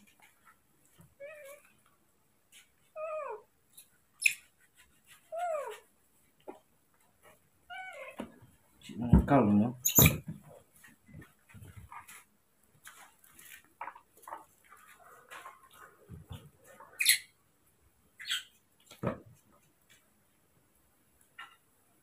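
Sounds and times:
baby monkeys squeaking: 9.8s - 10.2s.

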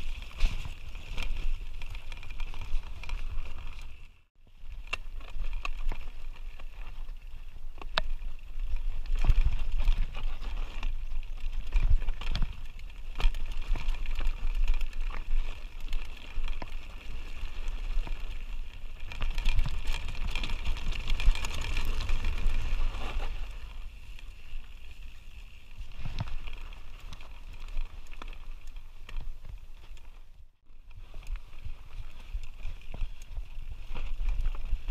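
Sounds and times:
bike rattles and knocks: 0.0s - 4.0s, 7.8s - 23.8s.

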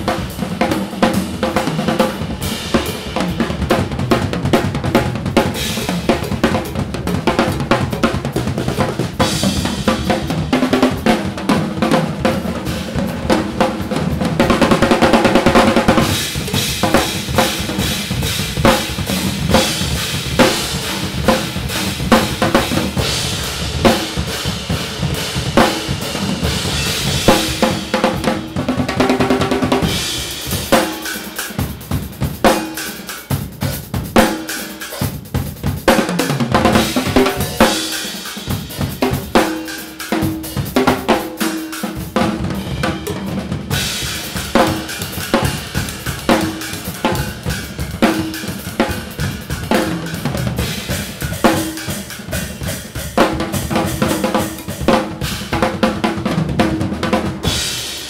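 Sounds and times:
drum kits playing: 0.0s - 58.0s.

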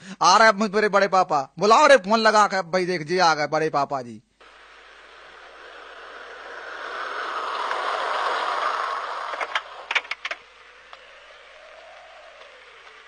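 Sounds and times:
vehicle passing by: 4.4s - 13.0s
sharp clicks and knocks: 9.3s - 11.1s.

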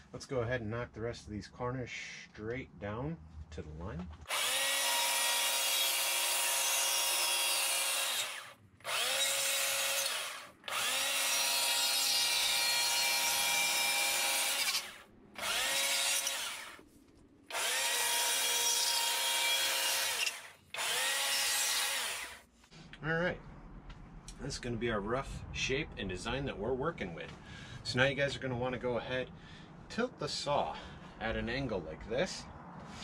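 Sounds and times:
chainsaw cutting wood: 4.3s - 16.8s, 17.5s - 22.5s.

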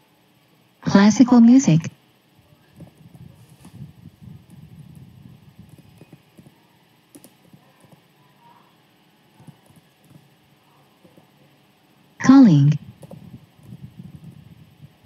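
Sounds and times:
computer keyboard typing: 5.6s - 6.5s, 7.1s - 8.0s, 9.4s - 10.3s, 13.0s - 13.7s.

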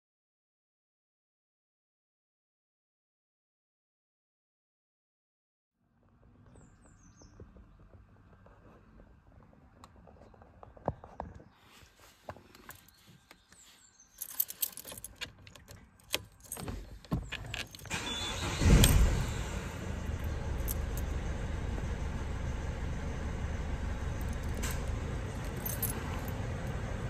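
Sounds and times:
keys jangling in ignition: 12.5s - 19.3s, 20.0s - 21.2s, 24.1s - 26.8s
diesel engine starting and idling: 16.5s - 27.0s.

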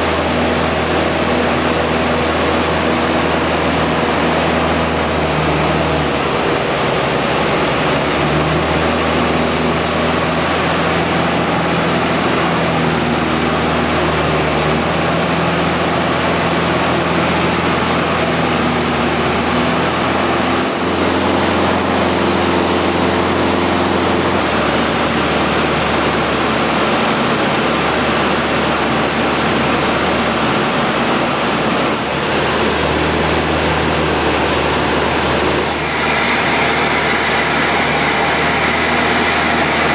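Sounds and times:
aircraft engine and propeller: 0.0s - 39.9s
loud rushing airflow: 0.0s - 39.9s.

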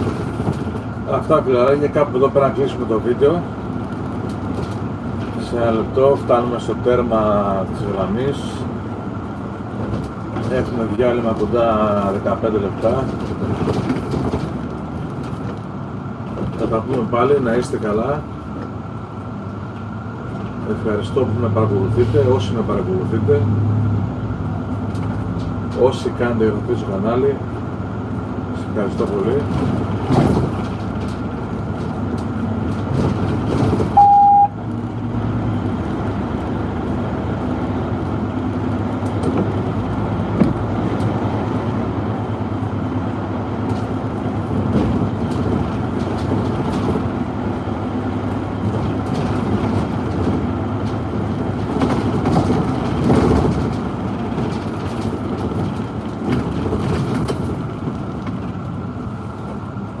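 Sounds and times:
bus engine and road noise: 0.0s - 60.0s
short electronic beep: 34.0s - 34.6s.

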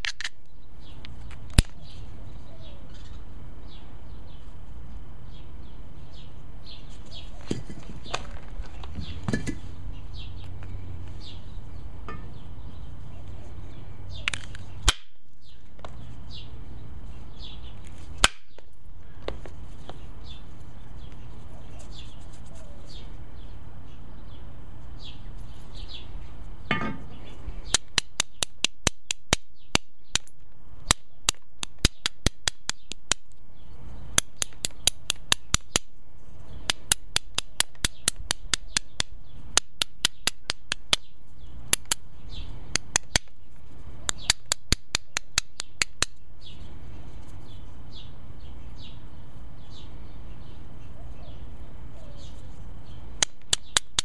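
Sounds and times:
hammerstone clicking on stone: 27.7s - 33.3s, 34.2s - 35.9s, 36.6s - 41.1s, 41.7s - 42.0s, 42.7s - 43.4s, 44.1s - 46.2s, 53.2s - 54.0s.

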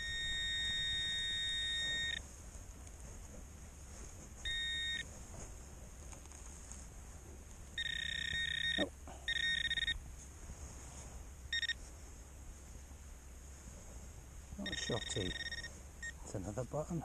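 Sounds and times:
high-pitched electronic tone: 7.8s - 10.0s, 14.6s - 15.7s.

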